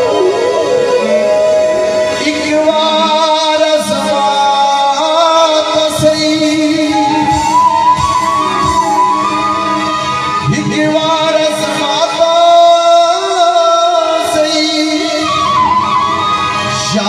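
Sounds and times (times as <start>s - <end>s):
bamboo flute: 0.0s - 3.1s, 6.0s - 11.3s, 14.6s - 17.0s
harmonium: 0.0s - 17.0s
man singing long notes: 0.0s - 17.0s
tabla drums: 2.0s - 17.0s.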